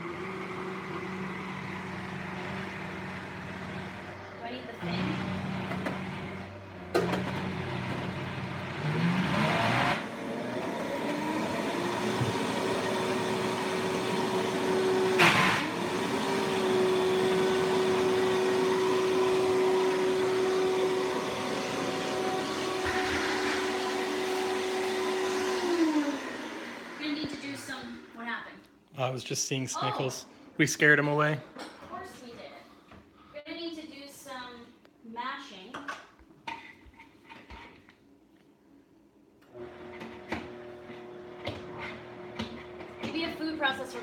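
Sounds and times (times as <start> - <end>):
blender motor whining: 0.0 - 28.1, 39.5 - 44.0.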